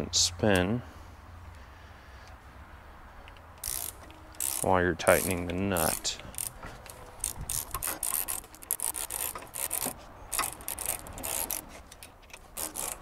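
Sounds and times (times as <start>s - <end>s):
ratchet wrench clicking: 3.2s - 13.0s.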